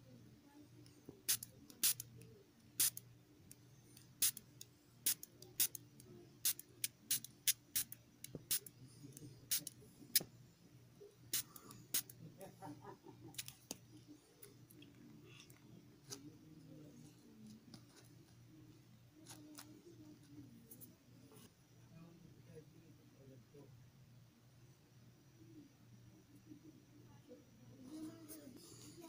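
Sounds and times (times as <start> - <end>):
spray bottle spritzing: 1.3 - 2.0, 2.8 - 3.0, 4.2 - 4.4, 5.1 - 5.8, 6.4 - 8.6, 11.3 - 12.1
soft handling sounds: 13.4 - 21.6, 27.8 - 29.0.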